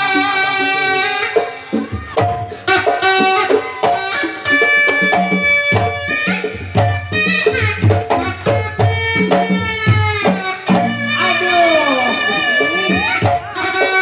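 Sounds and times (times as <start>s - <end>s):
hand drums playing sharp strokes: 0.0s - 14.0s
shrill double-reed trumpet melody: 10.5s - 14.0s.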